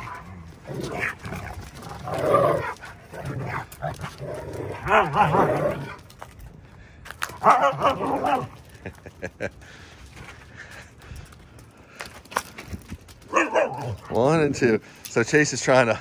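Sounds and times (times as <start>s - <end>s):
dogs growling: 0.0s - 6.2s, 7.4s - 8.8s
dogs barking: 4.7s - 5.5s, 7.4s - 8.6s, 13.3s - 14.2s.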